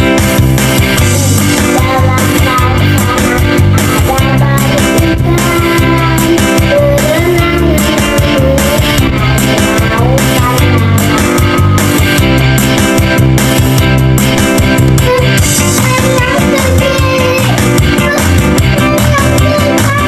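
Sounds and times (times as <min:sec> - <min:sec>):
backing music with steady beat: 0:00.0 - 0:20.0
child singing: 0:01.0 - 0:11.6, 0:15.0 - 0:20.0.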